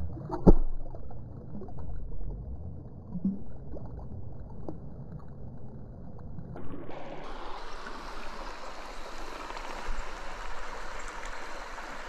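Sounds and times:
stream rushing water: 6.6s - 12.0s.

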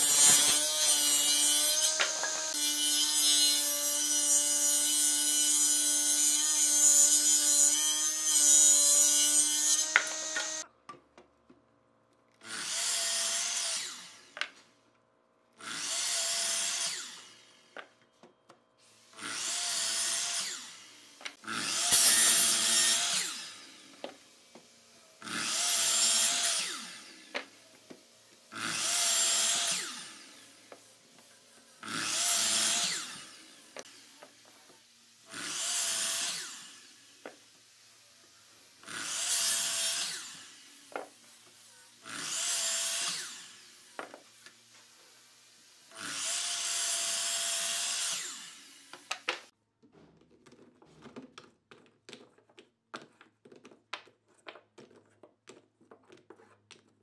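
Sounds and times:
miter saw cutting block: 0.0s - 10.7s, 12.4s - 14.6s, 15.6s - 17.9s, 19.0s - 31.0s, 31.6s - 49.5s
table saw ripping log: 0.0s - 10.7s, 19.1s - 27.6s, 28.5s - 30.8s, 31.7s - 37.6s, 38.8s - 44.6s, 45.9s - 49.5s.

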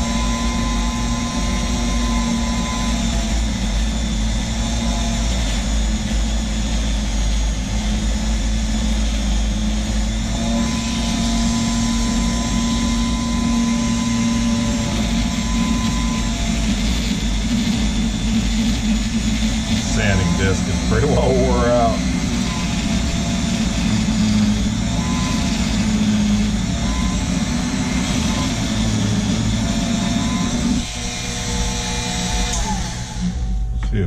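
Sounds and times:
rotary tool sanding drum grinding: 0.0s - 33.4s.

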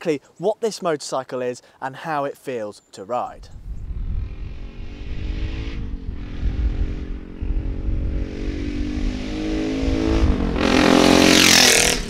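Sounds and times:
wind on microphone: 3.4s - 12.0s
motorcycle engine accelerating: 3.7s - 12.0s.

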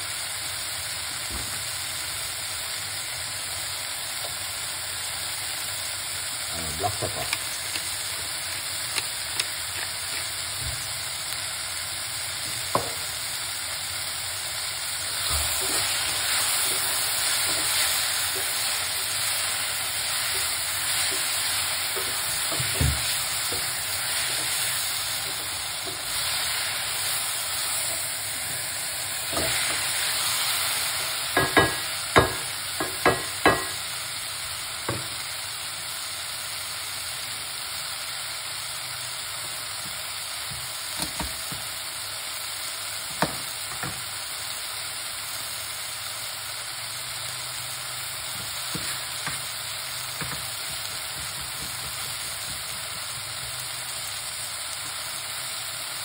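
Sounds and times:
vegetables sizzling in a pot: 0.0s - 56.0s
wooden spoon knocking on metal pot: 12.7s - 13.1s, 20.2s - 24.6s, 31.4s - 33.8s, 50.2s - 53.0s.

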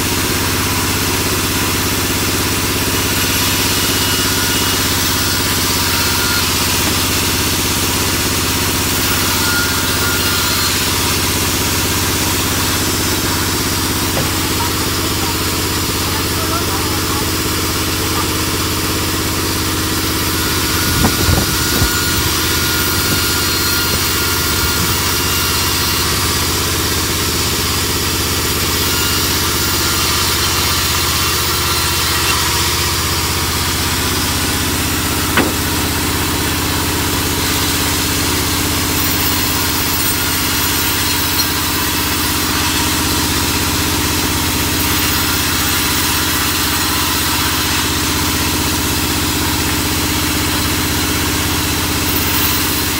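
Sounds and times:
band saw droning: 0.0s - 52.9s
sharp knocks: 35.3s - 36.0s.

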